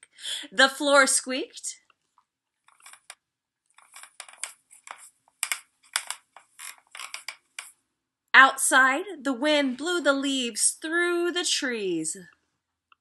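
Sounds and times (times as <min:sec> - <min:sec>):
wooden floorboards creaking: 0:03.8 - 0:07.6.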